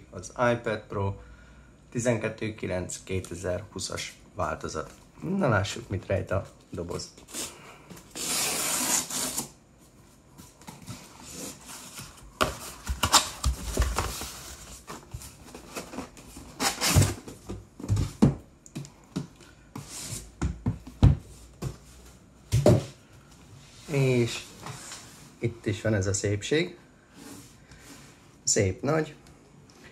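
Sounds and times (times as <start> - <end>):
cardboard ripping: 8.1 - 9.6, 11.3 - 17.3
cardboard scraping and rustling: 10.5 - 18.2.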